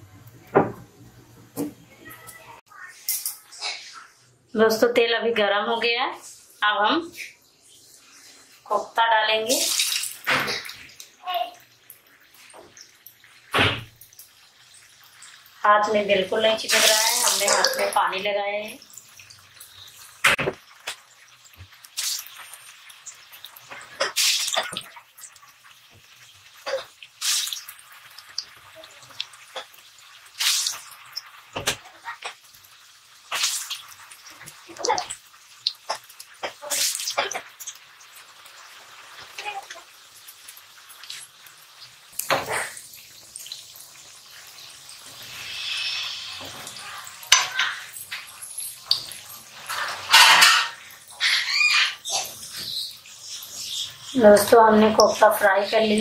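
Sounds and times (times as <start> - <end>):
deep-frying oil crackling: 6.2 - 56.0
hissing surges in hot oil: 6.2 - 56.0
metal spatula scraping pan: 45.5 - 50.9.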